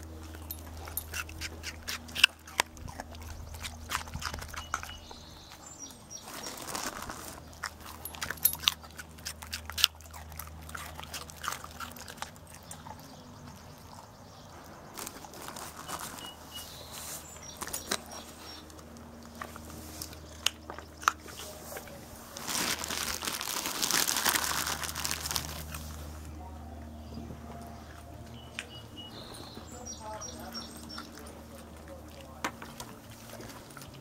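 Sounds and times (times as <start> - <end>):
dogs crunching carrots: 0.0 - 34.0
rustling: 6.2 - 8.7, 14.9 - 18.7, 21.1 - 26.3.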